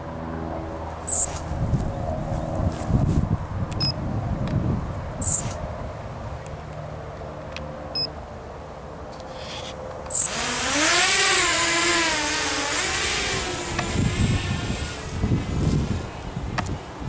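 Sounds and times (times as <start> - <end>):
quadcopter motors whining: 1.0 - 4.0, 5.2 - 5.6, 9.2 - 16.8.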